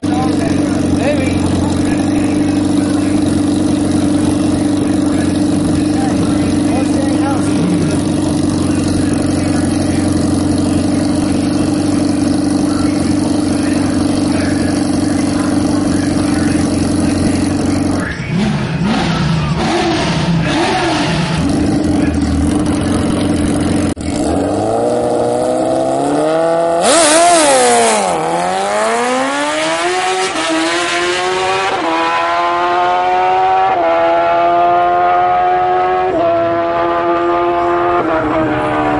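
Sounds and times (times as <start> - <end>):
motorcycle engine revving: 0.0 - 38.9
motorcycle launching and upshifting: 7.4 - 38.1.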